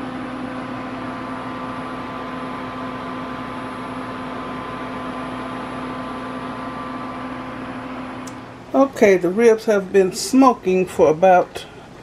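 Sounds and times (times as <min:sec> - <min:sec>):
cooling fan whirring: 0:00.0 - 0:12.0
low electrical hum: 0:00.0 - 0:12.0.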